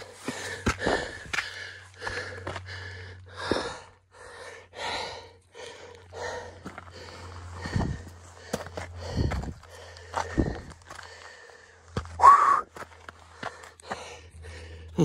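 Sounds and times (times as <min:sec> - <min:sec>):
footsteps on loose gravel: 0:00.0 - 0:02.8, 0:06.3 - 0:14.4
person breathing hard: 0:00.0 - 0:15.0.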